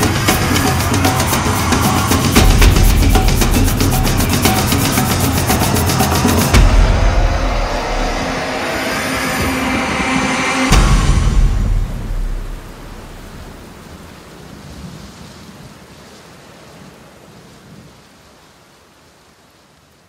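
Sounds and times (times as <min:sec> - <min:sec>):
soft rain-like hiss: 0:00.0 - 0:20.0
deep boom: 0:02.3 - 0:05.4, 0:06.5 - 0:13.8.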